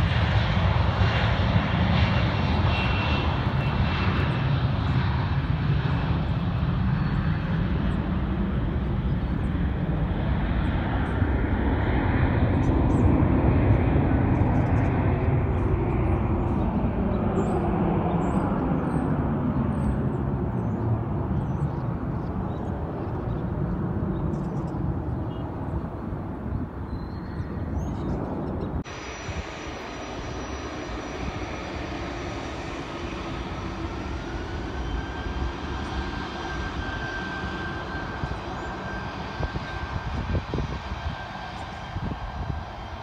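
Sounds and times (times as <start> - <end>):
airliner jet engine climbing away: 0.0 - 43.0
jet engines spooling up: 28.8 - 43.0.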